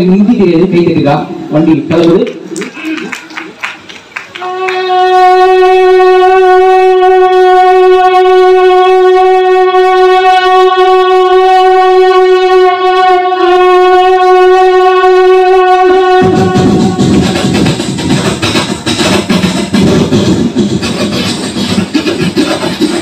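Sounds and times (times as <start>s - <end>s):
man imitating a train horn: 4.4s - 17.8s.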